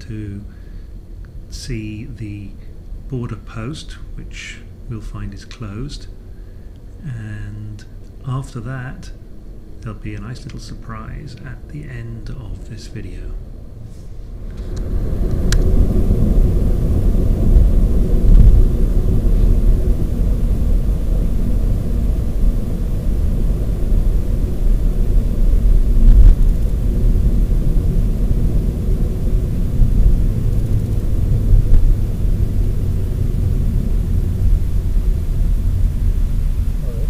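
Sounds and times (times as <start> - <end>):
car interior road rumble: 14.5 - 37.0.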